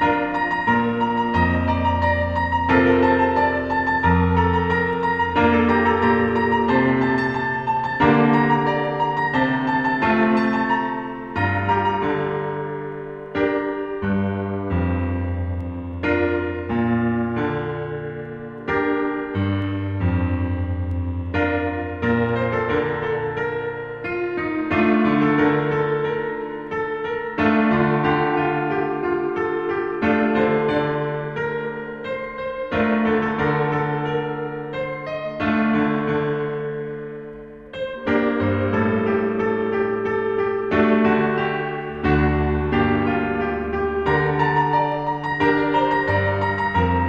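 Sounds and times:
low piano bass notes: 0.0s - 47.0s
piano chords ringing: 0.0s - 47.0s.

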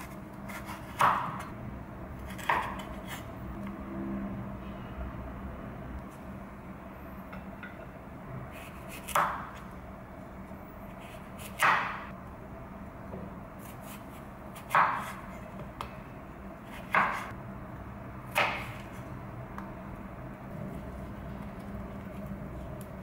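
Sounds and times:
knife chopping on wooden board: 0.0s - 1.5s, 2.3s - 3.2s, 8.6s - 9.7s, 11.4s - 12.1s, 13.6s - 15.9s, 16.7s - 17.3s, 18.3s - 19.0s.

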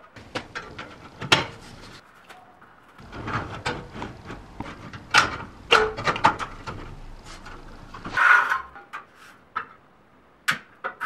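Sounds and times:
sharp clicks and knocks: 0.0s - 2.0s, 3.0s - 8.2s
metal profiles scraping: 0.2s - 2.1s, 3.0s - 9.4s.

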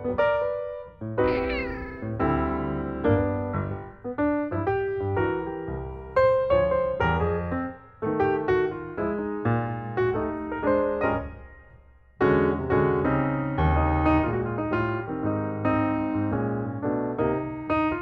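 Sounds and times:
piano music: 1.2s - 11.4s.

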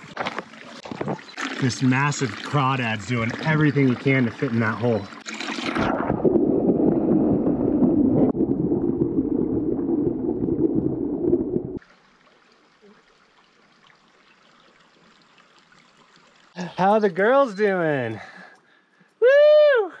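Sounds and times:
shallow creek trickling: 0.0s - 5.9s, 11.8s - 19.1s
muffled underwater water rushing: 0.0s - 12.6s.

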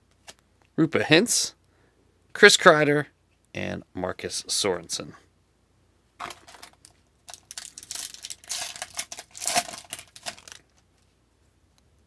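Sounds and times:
foil wrapper crinkling and tearing: 6.2s - 10.8s.

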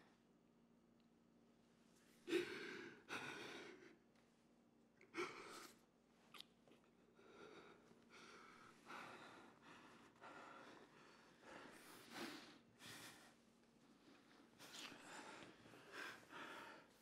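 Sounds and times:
people kissing and breathing: 14.6s - 16.2s.

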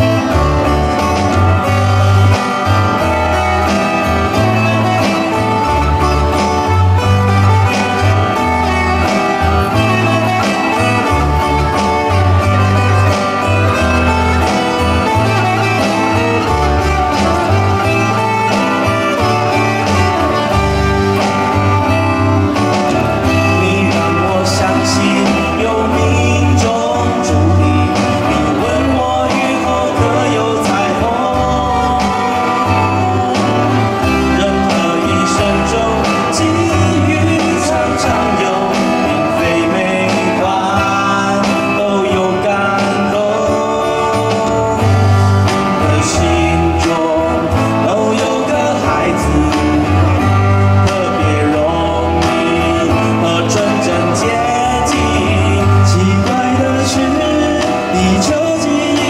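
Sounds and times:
guitars playing: 0.0s - 59.0s
steady bass line: 0.0s - 59.0s.

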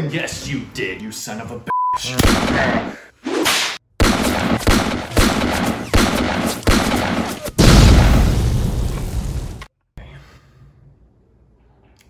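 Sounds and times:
handgun shots: 2.2s - 2.9s, 3.5s - 7.6s.

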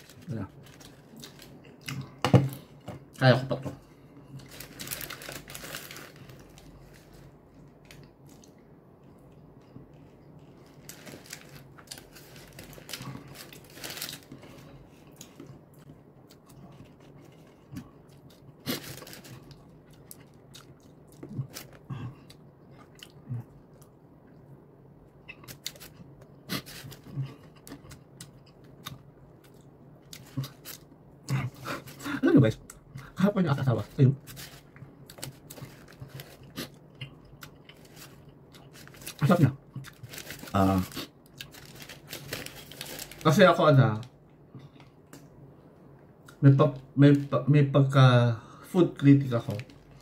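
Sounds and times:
person chewing crunchy food: 34.3s - 43.2s.

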